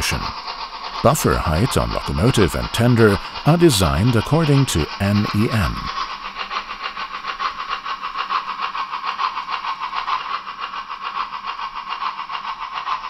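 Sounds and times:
model steam locomotive chuffing: 0:00.0 - 0:13.0.

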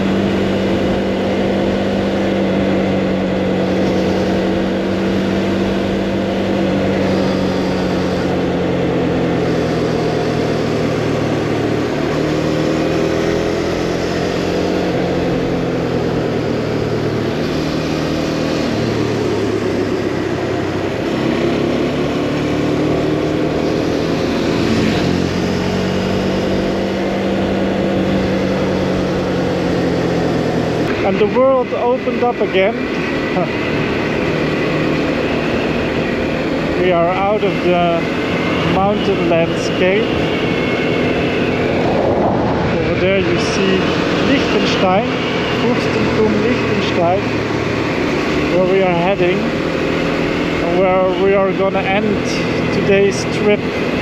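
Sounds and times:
motorcycle engine revving: 0:00.0 - 0:54.0
wind noise: 0:32.9 - 0:48.6.

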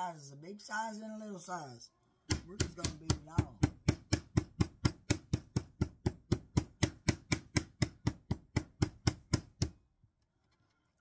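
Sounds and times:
meat mallet pounding on cutting board: 0:02.3 - 0:09.8.

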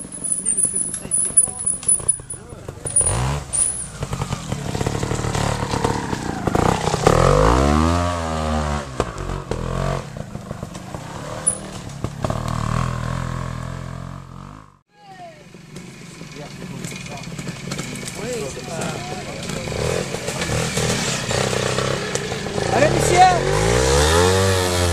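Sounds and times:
motorcycle engine revving: 0:00.0 - 0:14.8, 0:15.5 - 0:24.9.

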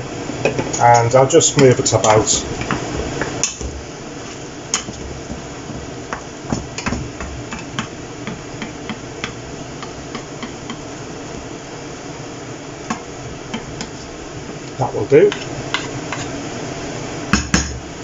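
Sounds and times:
steady hiss: 0:00.0 - 0:18.0
wooden spoon scraping pan: 0:15.3 - 0:16.4.

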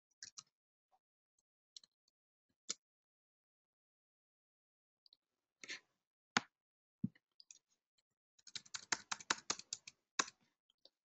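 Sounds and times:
computer keyboard typing: 0:08.4 - 0:10.3.

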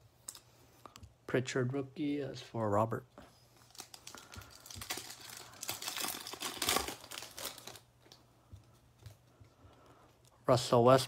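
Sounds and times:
foil pack crinkling and tearing: 0:03.6 - 0:08.2.

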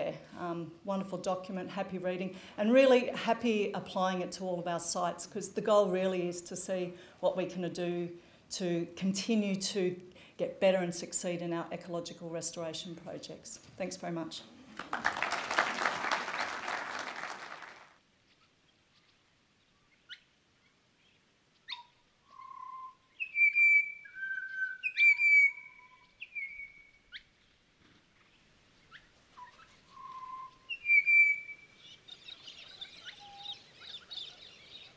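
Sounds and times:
audience applause: 0:14.7 - 0:18.0
whistled bird calls: 0:21.6 - 0:27.2, 0:28.9 - 0:34.9.

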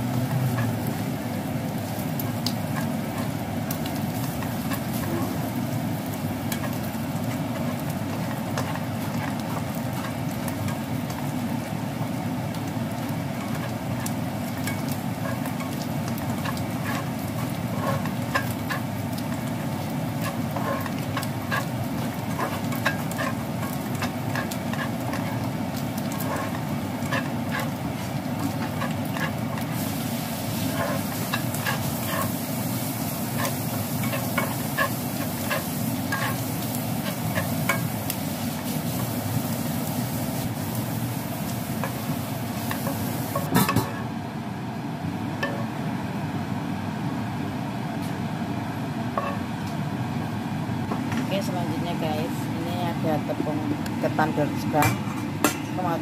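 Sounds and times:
sausage and shrimp sizzling in oil: 0:00.0 - 0:56.0
spatula scraping and tapping pan: 0:06.5 - 0:11.2, 0:13.4 - 0:29.9, 0:30.5 - 0:38.0, 0:41.8 - 0:44.0, 0:49.2 - 0:49.4.

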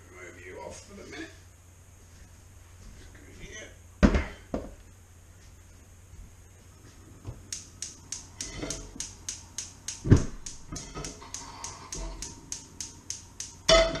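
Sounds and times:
thump: 0:04.0 - 0:04.7, 0:10.1 - 0:10.4
spark igniter clicking rapidly: 0:07.4 - 0:13.7.

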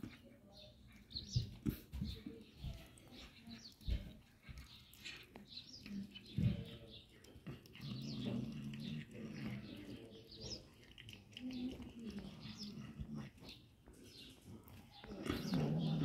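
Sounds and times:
cats chewing and smacking: 0:00.0 - 0:16.0.

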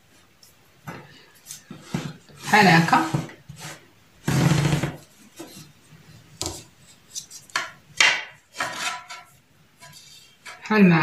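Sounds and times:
wooden ruler scraping on fabric: 0:01.7 - 0:05.7, 0:08.5 - 0:10.6.

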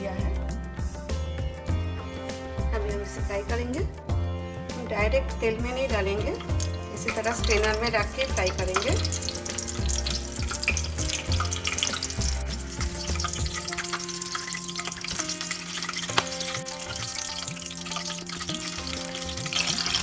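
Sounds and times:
background music: 0:00.0 - 0:20.0
hot oil sizzling and crackling: 0:05.7 - 0:20.0
sharp oil pop: 0:16.1 - 0:17.2.

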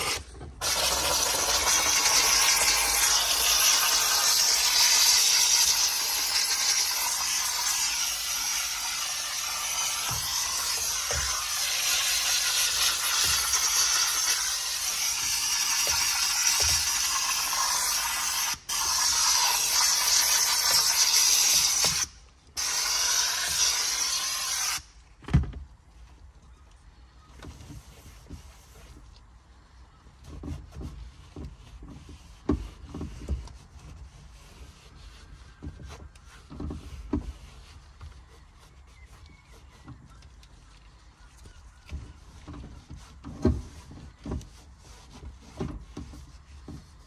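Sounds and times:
steam cleaner hissing: 0:00.0 - 0:24.9
cloth rubbing on wheel: 0:27.4 - 0:47.0.

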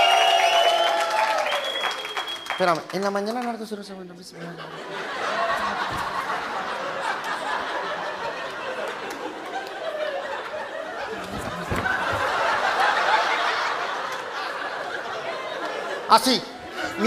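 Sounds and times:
audience laughing: 0:04.4 - 0:17.0.

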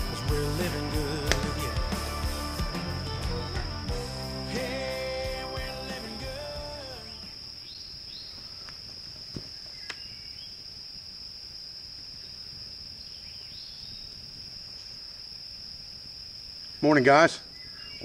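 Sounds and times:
music: 0:00.0 - 0:07.4
insect chorus: 0:00.0 - 0:18.0
bird chirps: 0:07.0 - 0:08.7, 0:09.6 - 0:10.6, 0:13.0 - 0:14.2, 0:17.4 - 0:18.0.

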